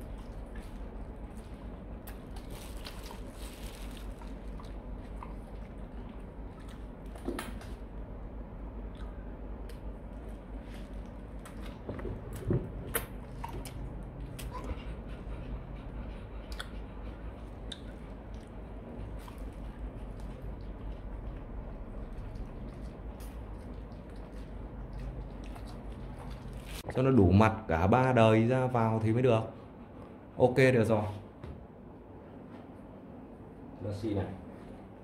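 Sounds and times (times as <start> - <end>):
dogs chewing treats: 0.0 - 7.3.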